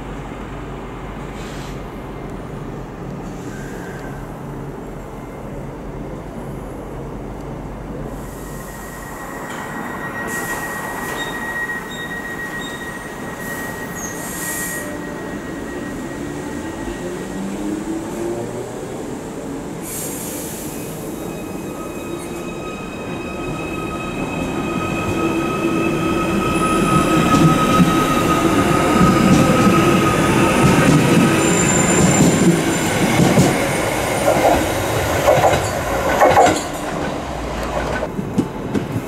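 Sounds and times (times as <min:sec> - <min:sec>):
electric train slowing to a stop: 0:00.0 - 0:38.2
train electrical tones rising: 0:08.1 - 0:38.1.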